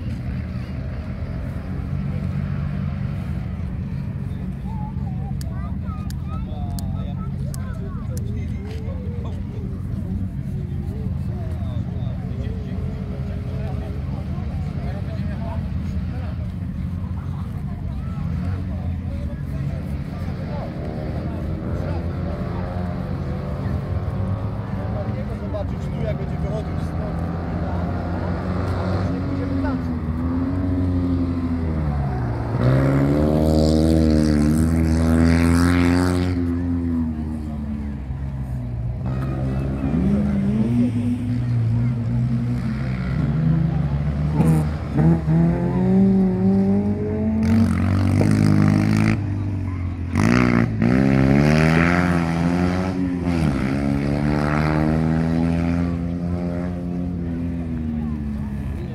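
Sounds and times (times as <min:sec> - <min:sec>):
low engine hum: 0:00.0 - 0:58.9
rally car engine revving: 0:12.7 - 0:38.3, 0:38.9 - 0:58.9
rally car engine accelerating past: 0:39.0 - 0:58.9.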